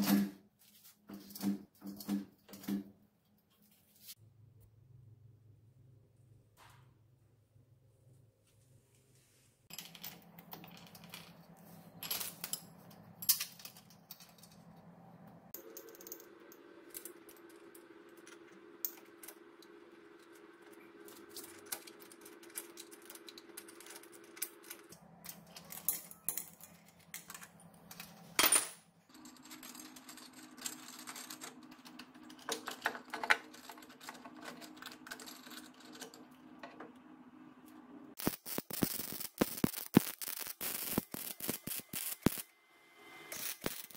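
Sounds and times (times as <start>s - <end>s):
metal tools clinking and knocking: 9.7s - 14.8s, 21.4s - 36.8s.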